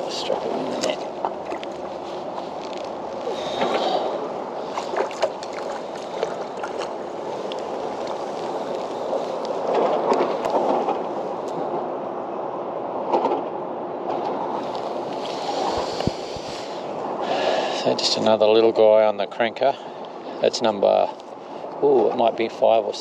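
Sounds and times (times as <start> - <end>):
water lapping around kayak: 0.0 - 11.9, 14.2 - 18.4.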